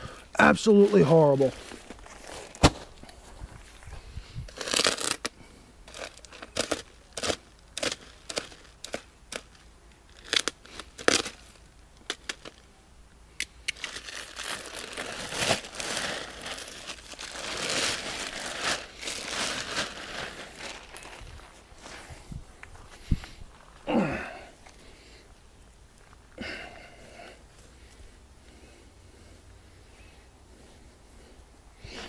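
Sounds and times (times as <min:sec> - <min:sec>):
plastic bag crinkling: 0:04.5 - 0:05.3, 0:05.9 - 0:12.7, 0:13.7 - 0:22.0.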